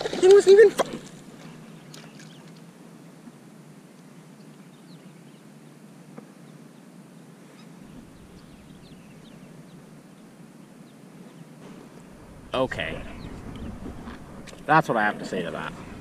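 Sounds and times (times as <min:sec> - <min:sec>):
background hiss: 0:00.0 - 0:16.0
low rumble: 0:07.8 - 0:10.0, 0:11.6 - 0:16.0.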